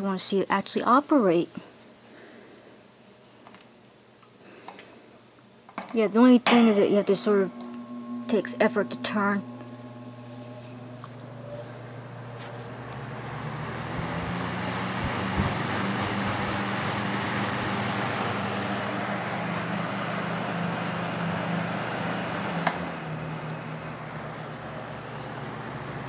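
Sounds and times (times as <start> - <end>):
fan air rushing: 6.1 - 26.0
low motor hum: 6.5 - 26.0.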